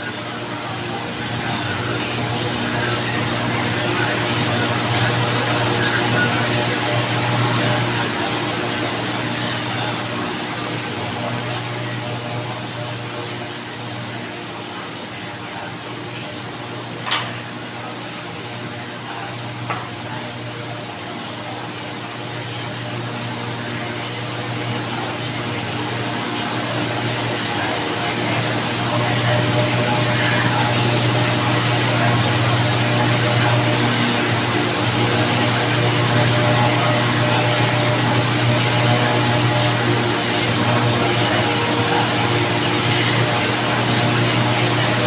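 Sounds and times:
low machine hum: 0:00.0 - 0:45.0.

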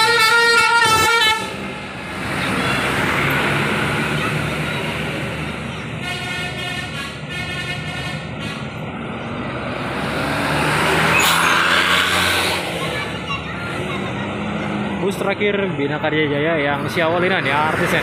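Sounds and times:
lower bus horn: 0:00.0 - 0:01.7, 0:06.0 - 0:08.8
bus horn blaring: 0:00.0 - 0:01.8, 0:05.9 - 0:08.8
coach engine passing by: 0:00.8 - 0:18.0.

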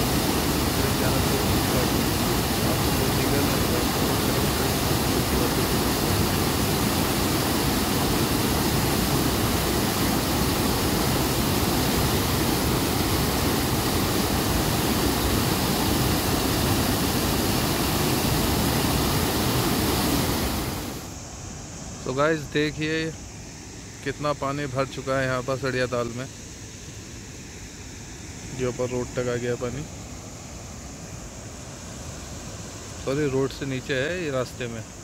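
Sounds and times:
waterfall rushing over rocks: 0:00.0 - 0:21.2.

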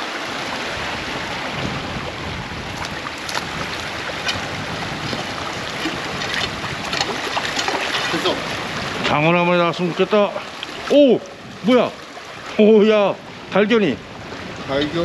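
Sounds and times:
stream water rushing: 0:00.0 - 0:15.0
splashes from wading: 0:02.5 - 0:12.7.

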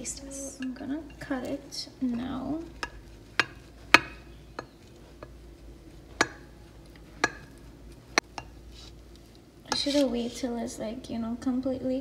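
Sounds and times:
knife tapping on glass dish: 0:02.8 - 0:05.3, 0:06.2 - 0:06.5, 0:07.2 - 0:07.6.

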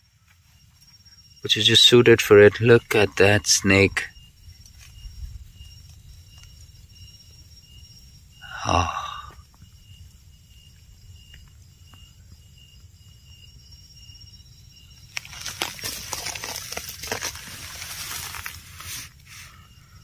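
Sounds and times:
insects chirping: 0:00.0 - 0:20.0
rustling of dry leaves and twigs: 0:15.0 - 0:20.0.

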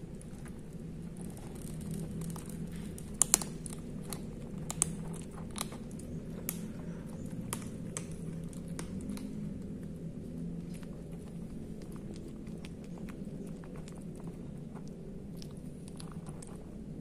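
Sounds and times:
kittens crunching dry kibble: 0:00.0 - 0:17.0.

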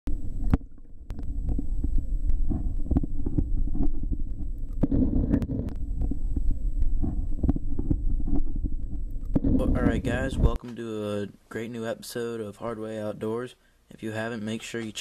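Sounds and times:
muffled underwater stream rumble: 0:00.1 - 0:10.6.

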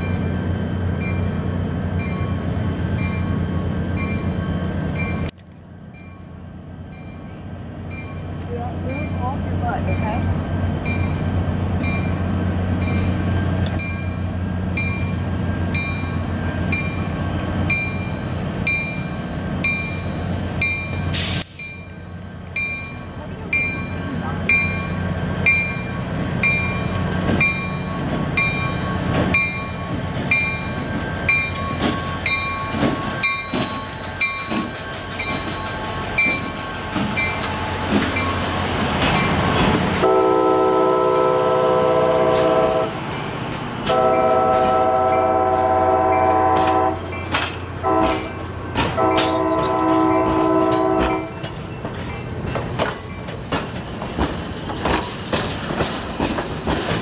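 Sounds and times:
locomotive bell ringing: 0:00.0 - 0:05.3, 0:05.9 - 0:40.3, 0:43.9 - 0:53.4
train wheels clicking over rail joints: 0:22.2 - 0:40.0, 0:46.3 - 0:57.0
locomotive horn blasts: 0:40.0 - 0:43.0, 0:43.9 - 0:47.1, 0:47.8 - 0:48.2, 0:48.9 - 0:51.4.

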